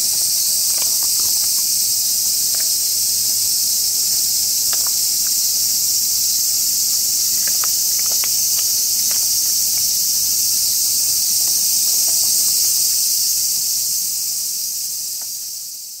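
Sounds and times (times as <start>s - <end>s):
cicadas chorus: 0.0s - 16.0s
cats chewing dry kibble: 0.2s - 12.3s.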